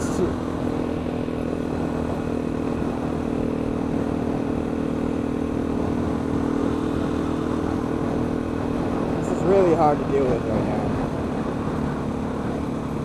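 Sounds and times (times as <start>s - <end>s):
motorcycle engine cruising: 0.0s - 13.0s
wind noise: 0.0s - 13.0s.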